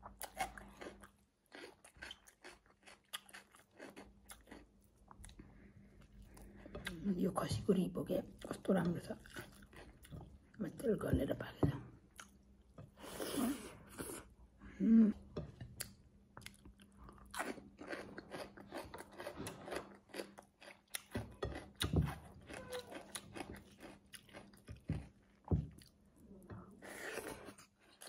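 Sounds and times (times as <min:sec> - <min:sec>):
chewing and biting meat: 0:00.2 - 0:05.4, 0:16.4 - 0:21.2, 0:22.2 - 0:25.1.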